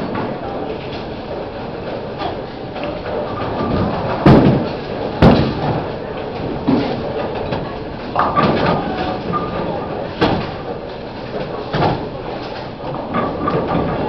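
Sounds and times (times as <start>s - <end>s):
bowling balls rolling: 0.0s - 14.0s
bowling pins crashing: 3.4s - 7.6s.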